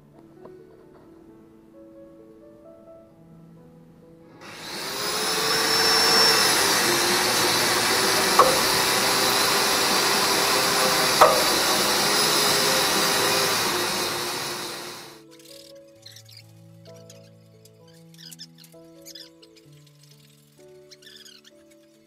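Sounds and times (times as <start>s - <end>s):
angle grinder cutting metal: 4.4s - 15.2s.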